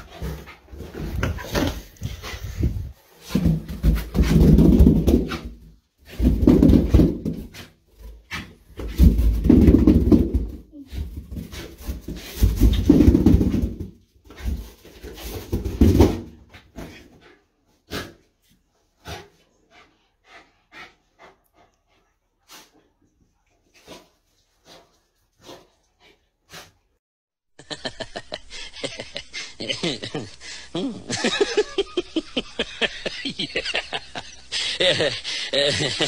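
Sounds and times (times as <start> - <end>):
small dog panting play sounds: 16.4 - 27.0.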